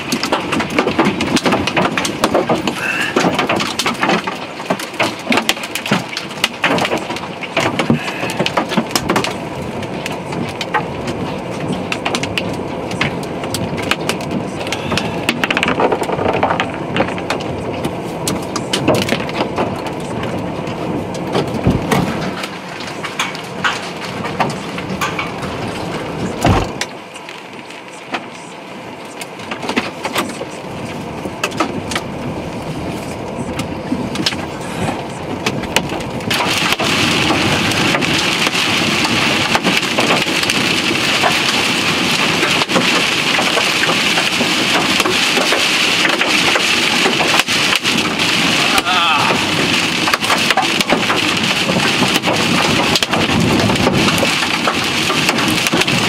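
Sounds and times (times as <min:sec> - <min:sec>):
hailstones clattering on car: 0:00.0 - 0:56.0
heavy rain on windshield: 0:00.0 - 0:56.0
heavier thuds: 0:26.4 - 0:26.8.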